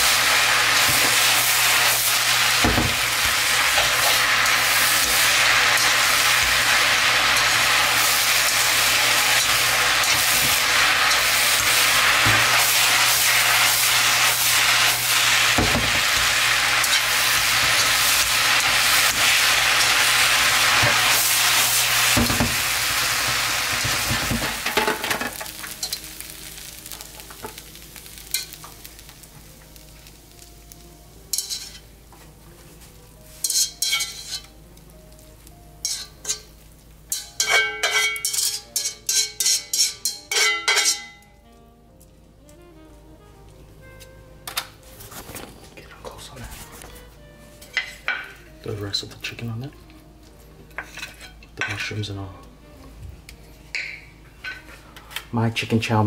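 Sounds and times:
noodles sizzling in a wok: 0.0 - 41.5, 46.3 - 49.6
tongs clattering against a wok: 23.4 - 26.1, 26.9 - 28.9, 31.3 - 31.9, 33.4 - 34.6, 35.8 - 36.5, 37.1 - 41.3.

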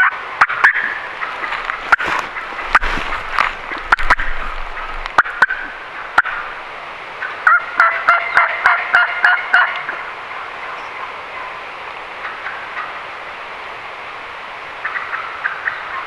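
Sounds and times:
turkey clucks: 0.0 - 6.6, 7.2 - 11.5, 14.8 - 16.0
turkey yelps: 7.4 - 9.9, 14.8 - 16.0.

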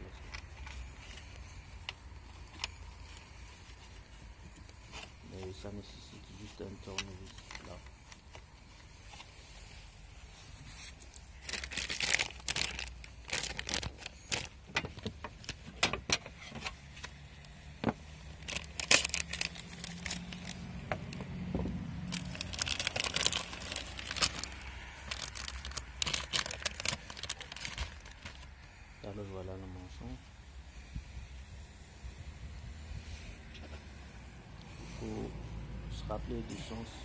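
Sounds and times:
plastic bag crinkling: 6.4 - 15.8, 18.2 - 21.2, 22.0 - 28.5.

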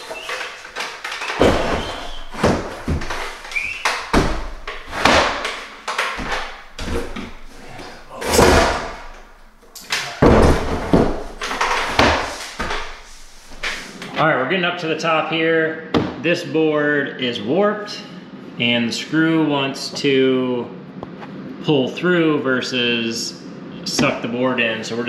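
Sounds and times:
wooden plank knocking and scraping: 0.0 - 9.4, 10.2 - 13.9.

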